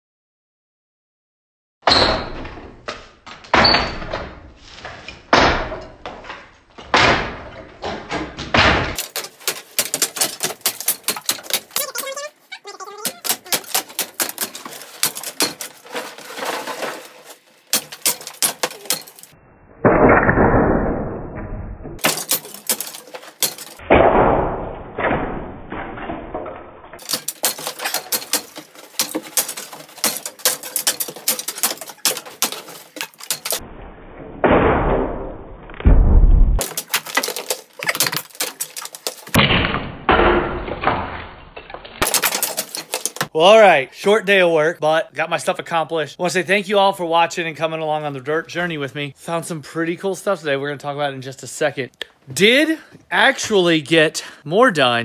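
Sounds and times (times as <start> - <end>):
noisy breaking: 1.9 - 43.4.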